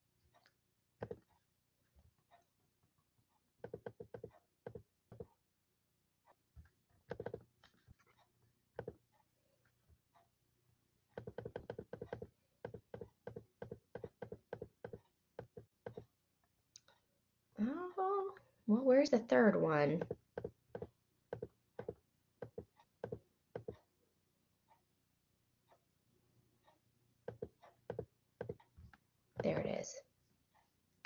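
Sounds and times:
keyboard typing: 3.6s - 5.3s, 7.1s - 7.8s, 11.2s - 16.1s, 19.9s - 23.8s, 27.3s - 28.7s.

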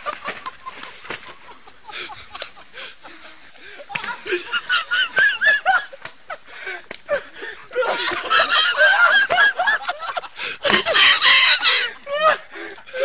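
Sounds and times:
hysterical cackling laughter: 0.0s - 13.0s.

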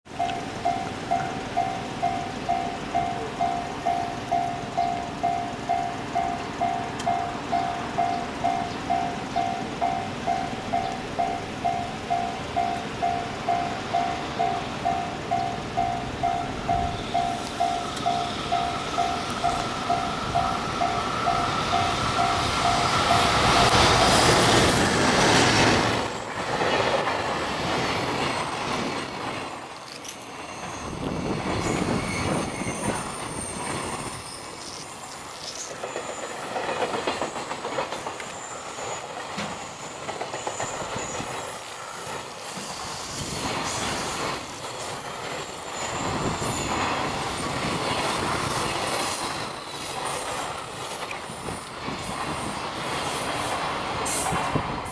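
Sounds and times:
train wheels rumbling and clattering: 0.1s - 54.9s
high wheel squeal: 16.2s - 54.4s.

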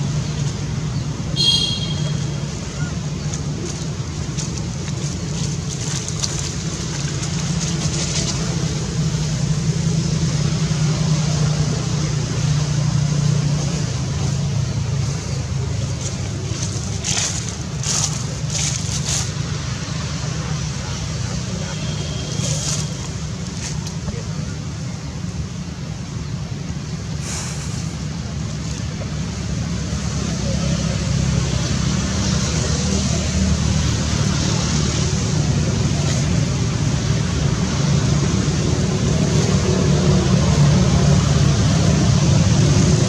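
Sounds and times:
vehicle engine drone: 0.0s - 43.0s
short high hisses: 27.2s - 28.0s.

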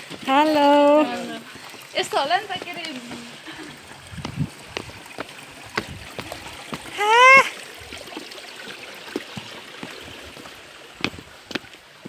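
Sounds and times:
footsteps crunching on stones: 0.0s - 6.9s, 9.2s - 12.0s
small stream rushing: 0.0s - 12.0s
person's high call: 6.9s - 7.6s.

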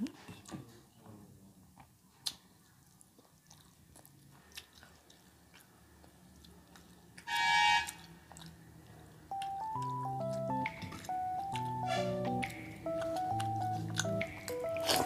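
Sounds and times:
faint chewing: 1.7s - 15.0s
loud high-pitched tone: 7.3s - 7.9s.

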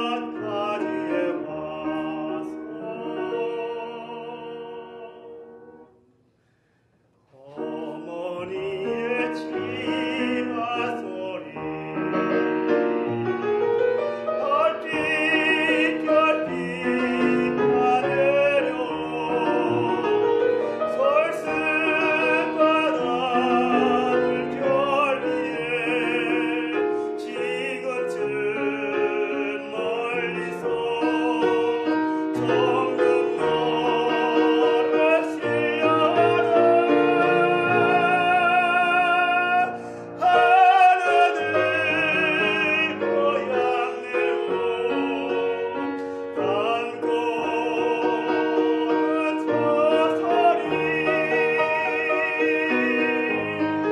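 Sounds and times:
tenor singing operatically: 0.0s - 5.8s, 7.4s - 13.0s, 14.0s - 53.9s
grand piano: 0.0s - 53.9s.

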